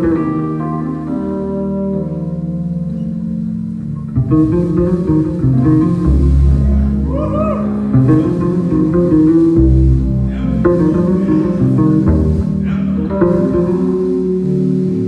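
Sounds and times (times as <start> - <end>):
electric bass guitar solo: 0.0 - 15.0.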